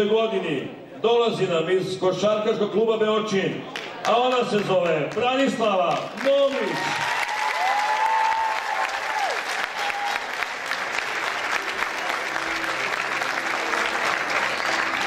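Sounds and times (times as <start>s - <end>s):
audience applauding: 3.7s - 15.0s
audience cheering: 6.2s - 15.0s.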